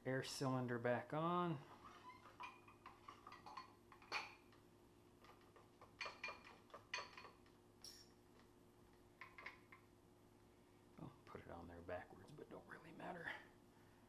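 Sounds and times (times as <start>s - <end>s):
low room hum: 0.0s - 14.0s
clicks and metal scrapes: 1.7s - 4.6s.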